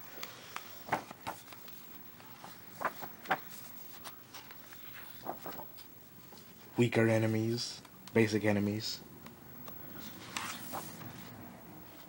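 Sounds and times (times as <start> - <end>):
book pages rustling: 0.0 - 6.7, 9.9 - 12.0.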